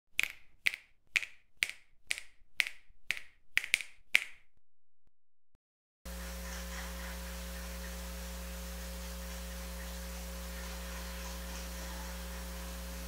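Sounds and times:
finger snaps: 0:00.2 - 0:04.5
low electrical hum: 0:06.1 - 0:13.0.

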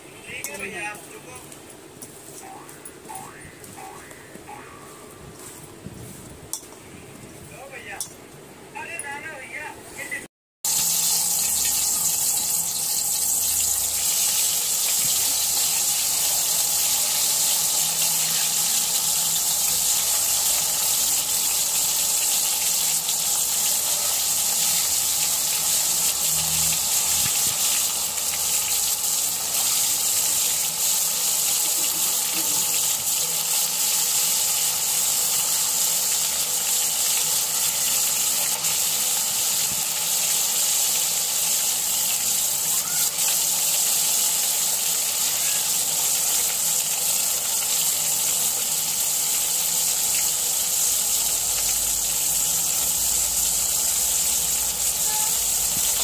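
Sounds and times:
eggplant deep-frying in oil: 0:10.6 - 0:56.0.

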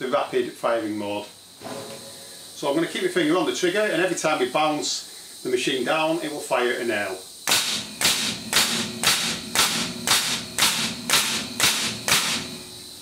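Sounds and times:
nail gun firing into timber: 0:07.5 - 0:12.5.

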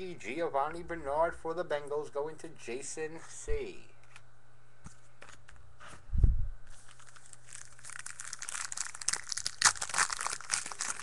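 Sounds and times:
card pack wrapper crinkling and tearing: 0:06.7 - 0:11.0.

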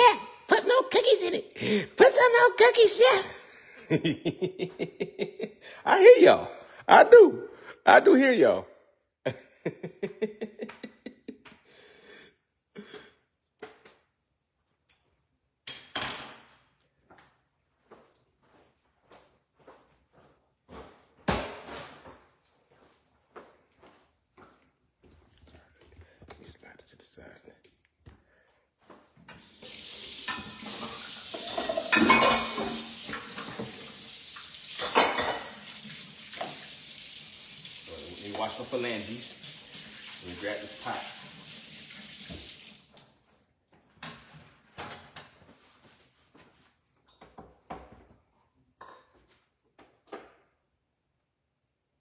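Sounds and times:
pots and pans clattering: 0:30.2 - 0:33.9, 0:34.7 - 0:35.7.

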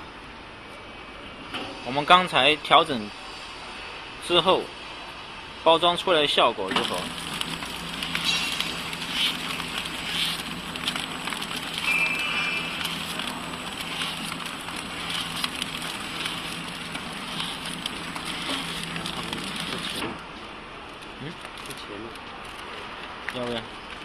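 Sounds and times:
packing machine humming: 0:06.6 - 0:20.5
rhythmic machine clack: 0:06.8 - 0:20.0.

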